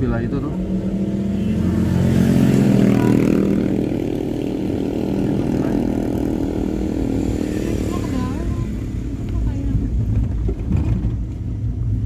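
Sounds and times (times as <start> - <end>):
car engine and road noise: 0.0 - 12.0
motor scooter passing: 0.6 - 9.1.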